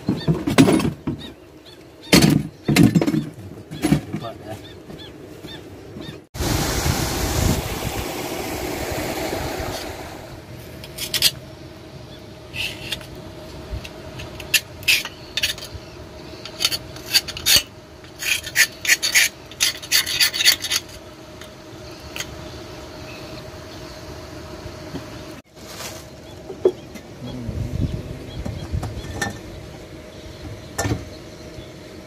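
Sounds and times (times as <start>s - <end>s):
water churning: 6.4s - 10.5s
metal tool scraping inside pump: 14.2s - 15.8s, 16.4s - 21.0s.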